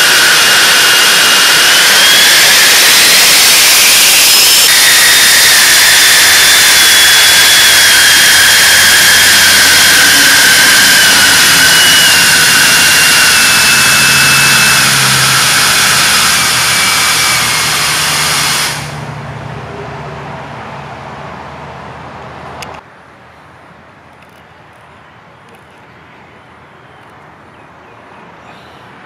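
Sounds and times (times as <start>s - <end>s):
electric ducted fan whine: 0.0s - 22.8s.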